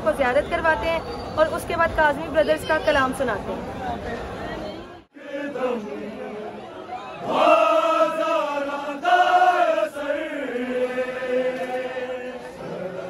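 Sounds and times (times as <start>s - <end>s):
crowd chanting: 5.0s - 13.0s.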